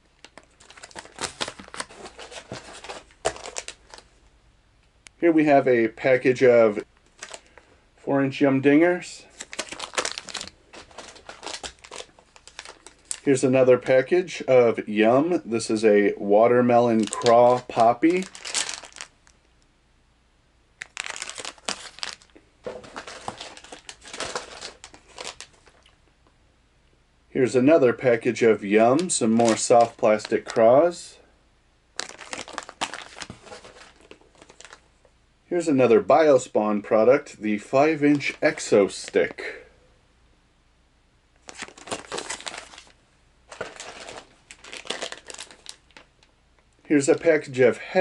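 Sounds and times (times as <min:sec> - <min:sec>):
plastic packages crinkling: 0:00.1 - 0:04.1, 0:07.1 - 0:07.6, 0:09.3 - 0:13.4, 0:16.8 - 0:19.4, 0:20.8 - 0:26.0, 0:28.9 - 0:30.8, 0:32.0 - 0:34.8, 0:38.1 - 0:39.2, 0:41.4 - 0:46.3.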